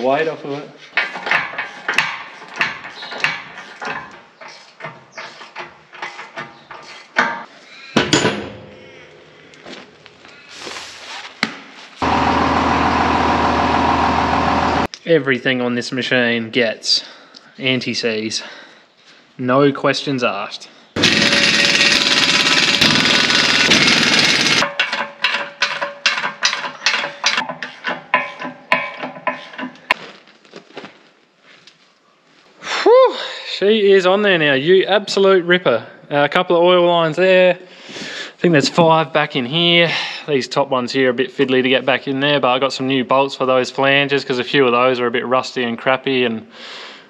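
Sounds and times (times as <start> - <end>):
impact wrench hammering: 8.0 - 9.2, 21.0 - 29.8
motor humming: 21.0 - 24.6.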